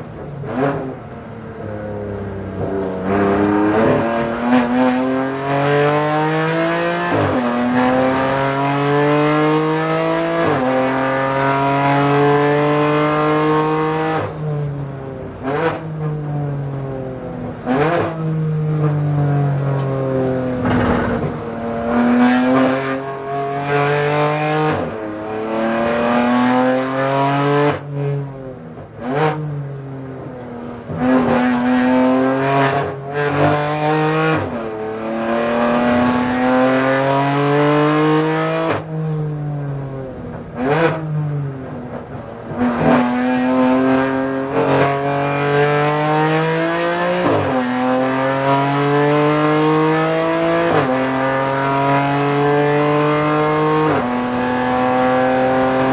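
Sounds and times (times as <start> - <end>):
race car engine revving: 2.6 - 14.4, 19.6 - 28.2, 30.6 - 38.9, 40.3 - 55.9.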